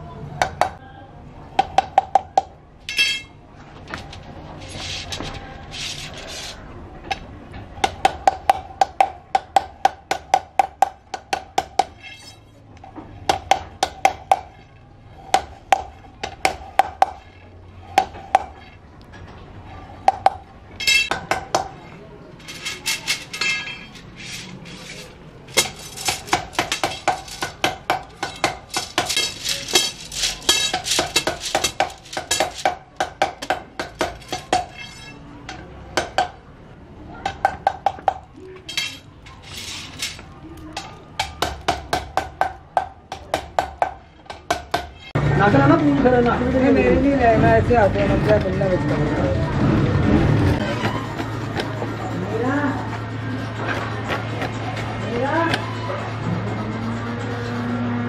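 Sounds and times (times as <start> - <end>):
mallet striking metal rods: 1.6 - 3.4, 7.8 - 12.5, 13.2 - 14.6, 15.3 - 17.3, 17.9 - 18.7, 20.0 - 21.8, 22.4 - 36.4, 37.2 - 40.2, 40.8 - 45.1
metal rods clattering: 2.9 - 6.6, 11.8 - 12.6, 20.8 - 21.4, 22.4 - 35.2, 38.6 - 41.4.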